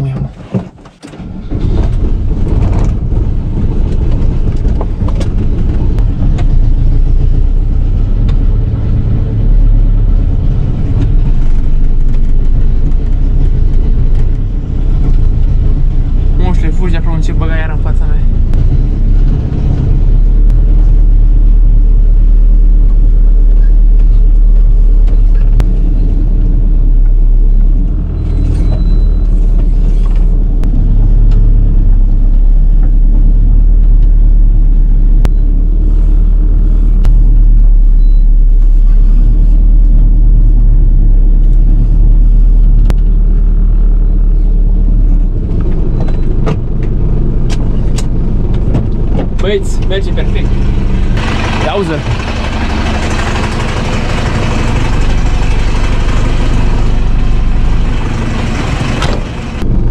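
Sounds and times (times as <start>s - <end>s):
van engine running: 0.0s - 59.9s.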